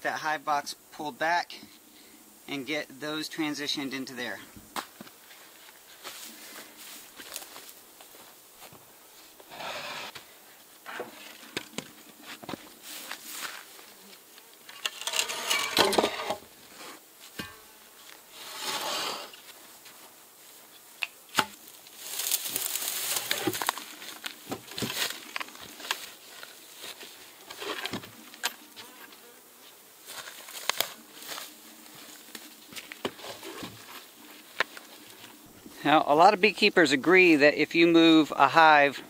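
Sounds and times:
rustling and scraping: 4.4s - 20.8s, 21.5s - 35.8s.

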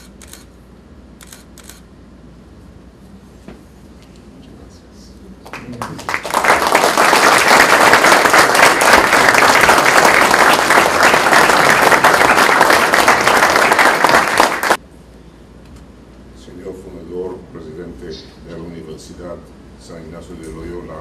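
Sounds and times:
audience applauding: 5.4s - 14.8s.

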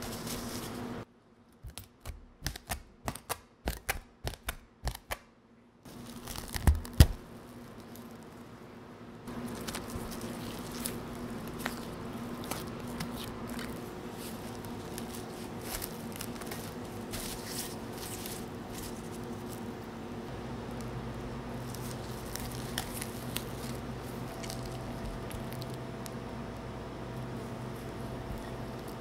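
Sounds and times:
faint steady hum: 0.0s - 29.0s
plastic wrap crinkling: 5.9s - 8.7s, 9.3s - 19.8s, 20.6s - 26.2s
hands squishing sticky dough: 5.9s - 19.9s, 20.6s - 26.3s.

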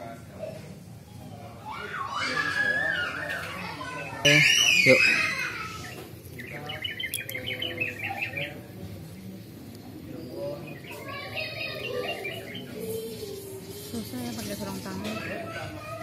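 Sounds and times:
faint background voices: 0.0s - 16.0s
small bird chirping: 4.2s - 8.7s, 9.7s - 15.8s.

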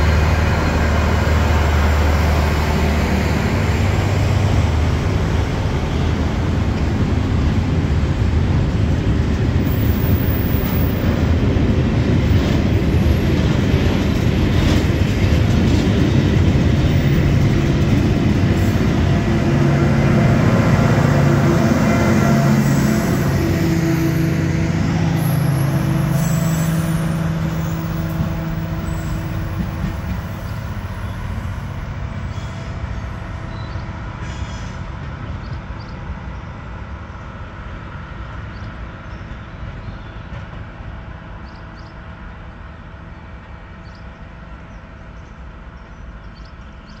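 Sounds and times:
train diesel engine hum: 0.0s - 47.0s
train wheels rumbling on rails: 0.0s - 47.0s.

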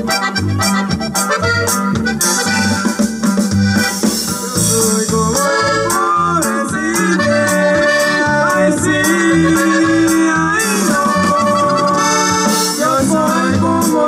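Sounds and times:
accordion melody: 0.0s - 14.0s
bass and drum beat: 0.0s - 14.0s
men singing into microphones: 4.2s - 14.0s.

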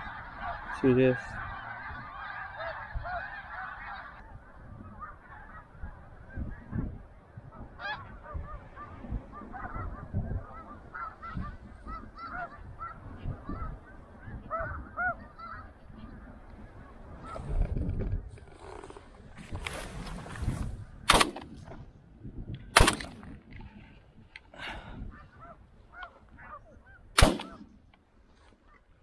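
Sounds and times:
geese honking: 0.0s - 17.6s, 25.1s - 27.7s.

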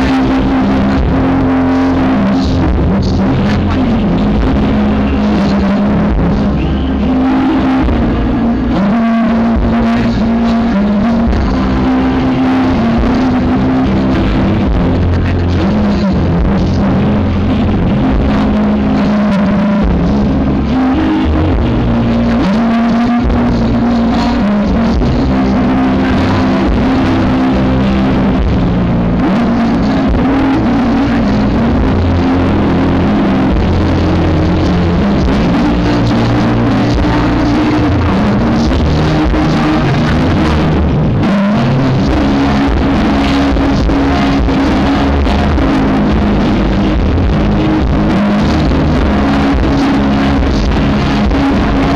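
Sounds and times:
distorted live rock band: 0.0s - 51.9s.

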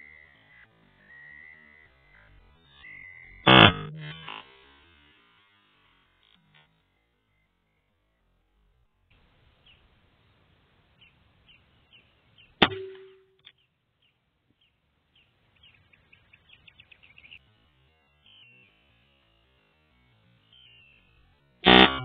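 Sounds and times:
faint bird chirps: 11.0s - 18.9s.

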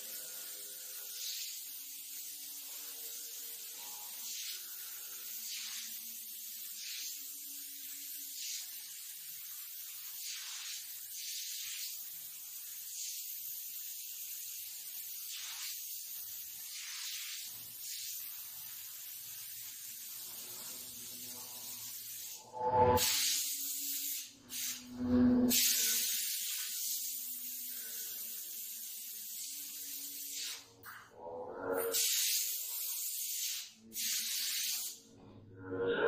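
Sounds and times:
paint spray gun hissing: 0.0s - 24.8s, 25.5s - 30.7s, 31.9s - 35.0s.

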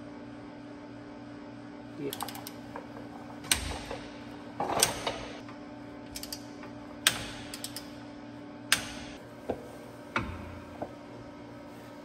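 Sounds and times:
ratchet metallic clicks: 6.2s - 6.5s, 7.1s - 7.9s.

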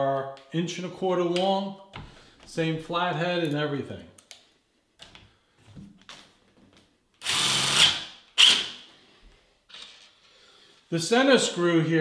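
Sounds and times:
power screwdriver driving screw: 7.2s - 8.8s.

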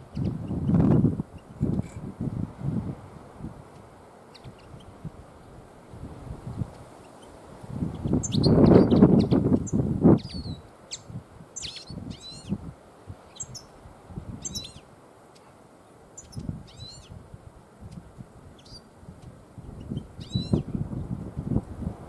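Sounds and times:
small songbird chirping: 0.0s - 2.1s, 3.7s - 5.0s, 6.6s - 12.6s, 13.2s - 17.2s, 17.8s - 21.2s.

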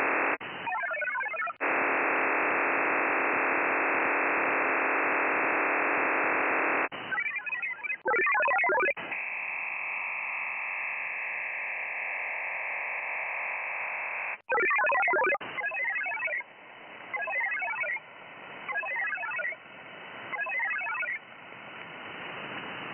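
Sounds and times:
multi-tone data bursts: 0.0s - 3.9s, 4.9s - 16.5s, 17.1s - 18.0s, 18.7s - 19.6s, 20.3s - 21.2s
radio hiss: 0.0s - 7.8s, 9.0s - 22.9s.

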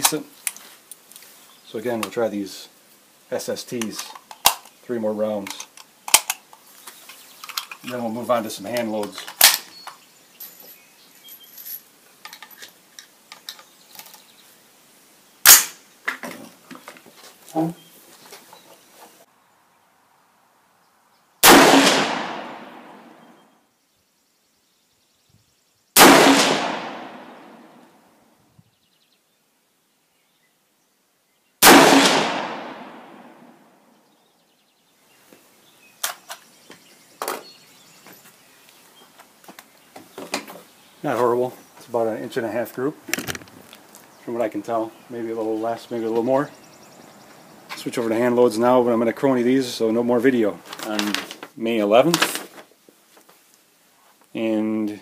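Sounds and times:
faint clicks of handling rifle: 0.0s - 1.3s, 5.4s - 8.0s
rifle shot: 15.4s - 15.8s, 21.4s - 23.2s, 26.0s - 27.7s, 31.6s - 33.6s
fainter sharp crack: 21.4s - 23.2s, 26.0s - 27.8s.

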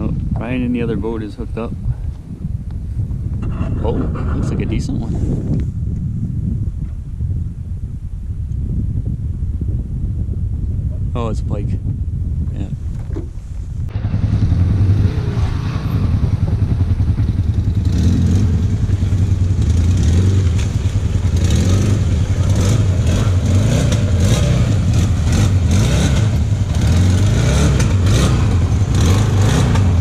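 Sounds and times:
atv engine running: 13.8s - 30.0s.

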